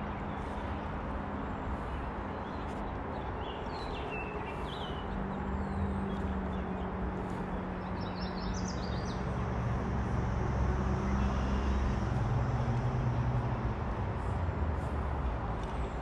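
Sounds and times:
low engine hum: 4.4s - 16.0s.

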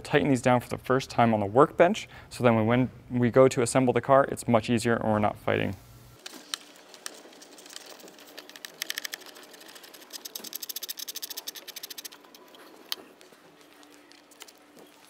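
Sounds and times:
ratchet wrench clicking: 8.4s - 12.4s.

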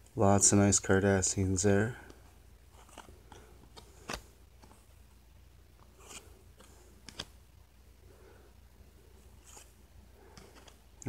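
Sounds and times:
cards sliding and clicking: 2.1s - 5.0s, 5.8s - 7.4s, 9.3s - 11.0s
card snapping: 7.0s - 7.3s.

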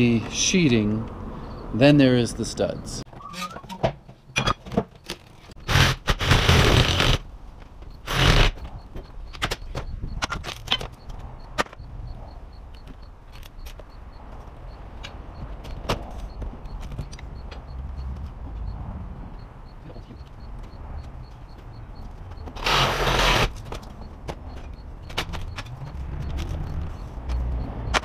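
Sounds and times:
tool scraping window frame: 5.6s - 7.2s, 22.5s - 23.8s.

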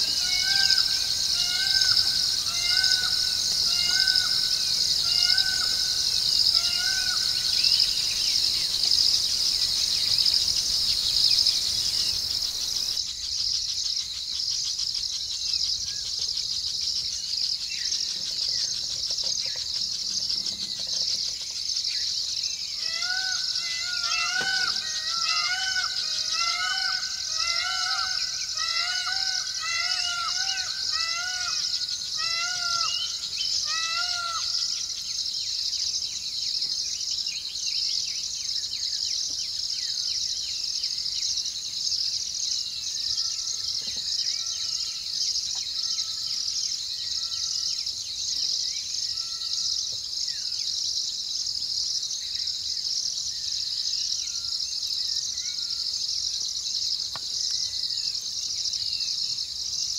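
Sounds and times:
crickets shrilling: 0.0s - 16.0s, 16.8s - 34.6s.

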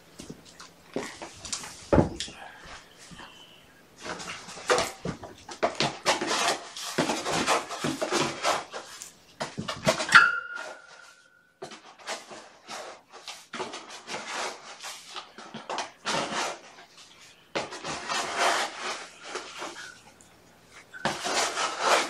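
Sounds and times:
rasping scrapes: 17.8s - 20.0s, 20.8s - 22.0s.

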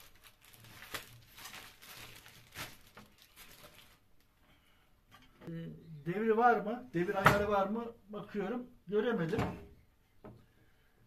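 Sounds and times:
plastic wrapping rustling: 0.0s - 4.3s.

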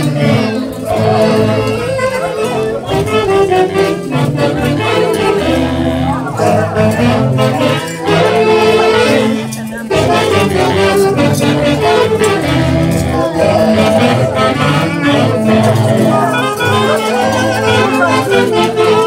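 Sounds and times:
saxophones and drums dance music: 0.0s - 19.0s.

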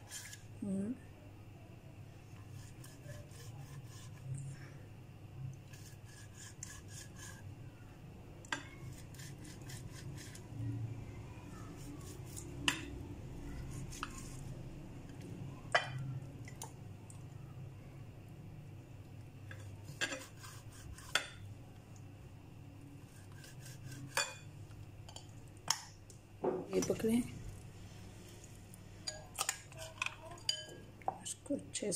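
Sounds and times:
knife scraping on plate: 0.0s - 0.5s, 19.8s - 21.4s, 23.1s - 24.4s.

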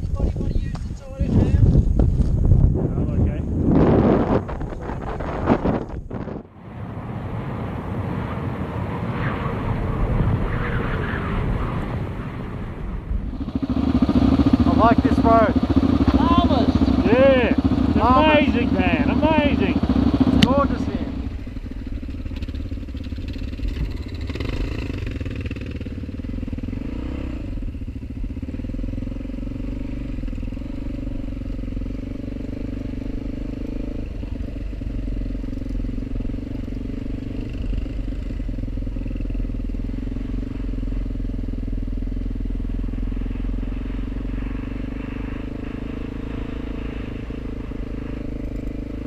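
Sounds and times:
motorcycle engine running: 0.0s - 7.4s, 12.6s - 49.0s.

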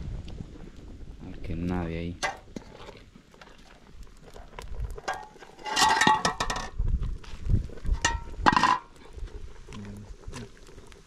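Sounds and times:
metal skimmer clinking in pot: 5.1s - 6.7s.

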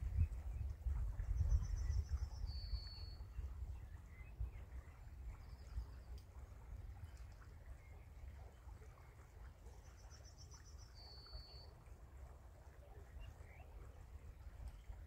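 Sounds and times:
wind buffeting microphone: 0.0s - 7.3s.

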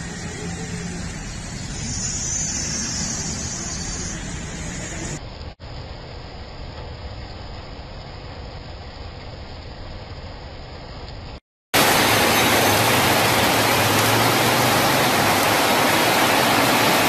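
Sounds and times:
vehicle rumble: 0.0s - 9.8s, 10.4s - 17.0s
heavy rain: 3.7s - 17.0s.

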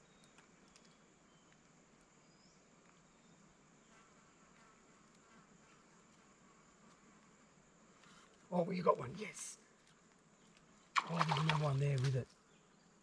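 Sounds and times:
faint ticks: 0.1s - 2.1s, 4.6s - 7.3s
high insect buzz: 2.2s - 12.9s.

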